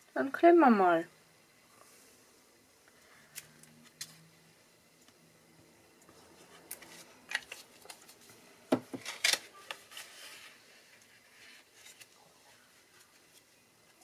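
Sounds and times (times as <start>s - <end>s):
card stock rustling and folding: 6.3s - 14.0s.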